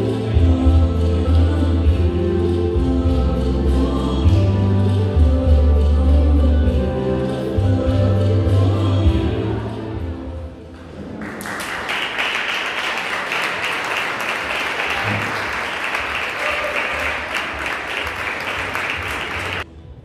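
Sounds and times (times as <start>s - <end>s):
audience applauding: 10.8s - 19.7s.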